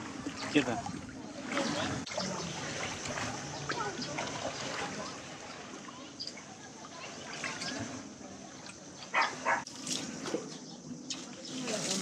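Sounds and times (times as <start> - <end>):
shallow sea water washing: 0.0 - 12.0
dog barking: 9.1 - 9.7.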